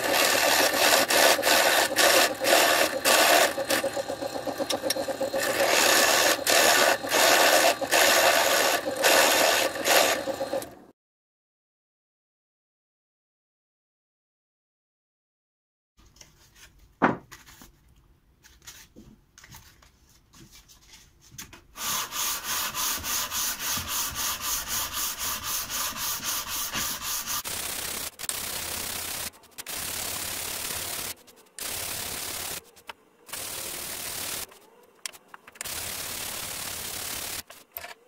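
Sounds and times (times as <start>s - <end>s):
sanding block scraping wood: 0.0s - 10.7s, 21.8s - 28.1s.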